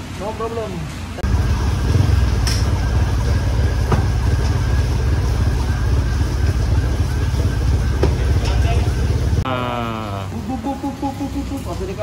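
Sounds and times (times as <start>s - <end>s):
steady low rumble: 1.2s - 9.6s.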